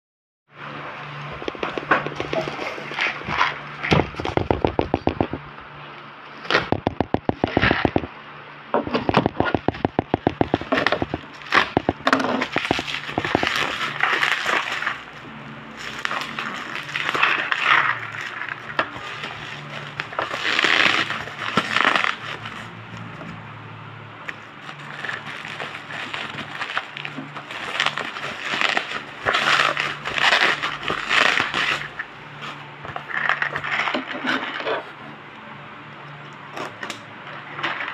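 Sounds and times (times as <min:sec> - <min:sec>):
plastic rustling: 0:01.1 - 0:05.5, 0:09.0 - 0:23.4, 0:24.2 - 0:35.0
bubble wrap crackling: 0:01.2 - 0:05.4, 0:09.2 - 0:23.4, 0:24.2 - 0:35.0.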